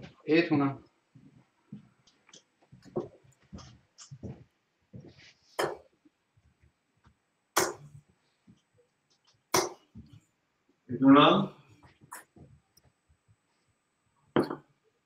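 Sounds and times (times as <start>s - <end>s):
darts thudding into dartboard: 14.4s - 14.6s.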